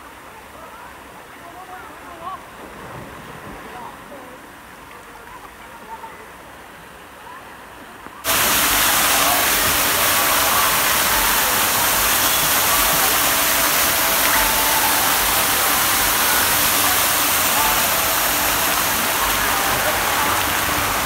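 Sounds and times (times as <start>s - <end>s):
loud steady rushing noise: 8.3s - 21.0s.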